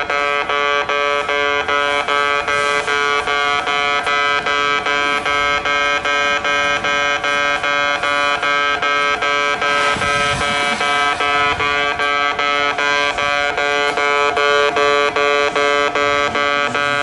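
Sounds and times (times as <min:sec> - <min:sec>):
level crossing alarm beeping: 0:00.0 - 0:17.0.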